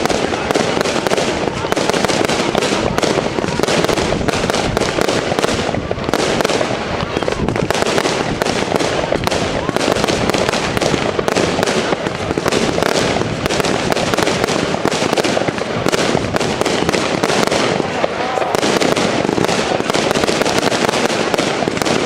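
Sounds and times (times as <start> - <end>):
fireworks shots and bursts: 0.0 - 22.0.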